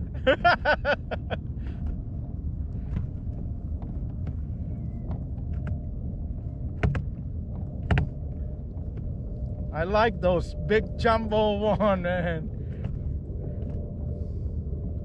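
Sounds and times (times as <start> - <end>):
man laughing: 0.0 - 1.4, 11.5 - 12.5
wind rumble on microphone: 0.0 - 15.0.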